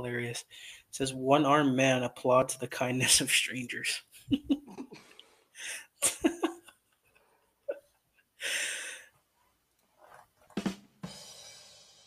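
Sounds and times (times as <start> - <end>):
stifled breathy laughter: 4.2 - 8.5.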